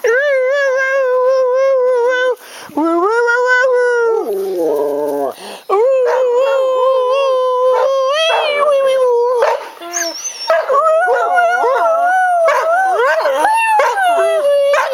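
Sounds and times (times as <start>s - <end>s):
dog howling: 4.2s - 14.9s.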